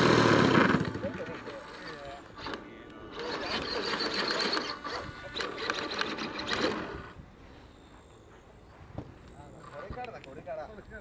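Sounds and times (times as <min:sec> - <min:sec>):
model airplane motor running: 0:00.0 - 0:07.2.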